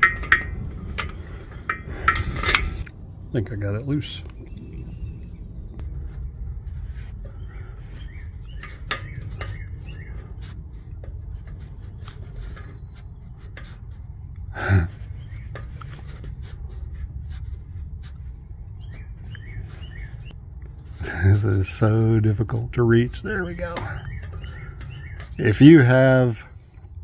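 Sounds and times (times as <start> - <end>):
metal clicks and rubbing: 0.0 - 3.0, 5.8 - 21.0, 21.6 - 27.0
low rumble: 0.0 - 8.4
birds chirping: 0.0 - 27.0.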